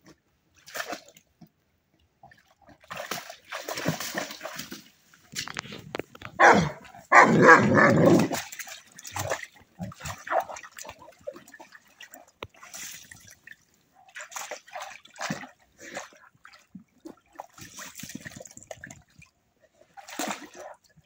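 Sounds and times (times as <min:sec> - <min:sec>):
splashing in shallow water: 0:00.6 - 0:01.3, 0:02.2 - 0:21.0
dog barking loudly: 0:06.4 - 0:08.3.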